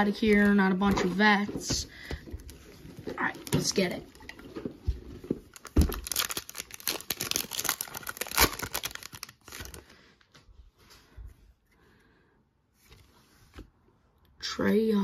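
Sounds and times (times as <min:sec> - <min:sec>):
foil wrapper crinkling: 0:05.5 - 0:09.9.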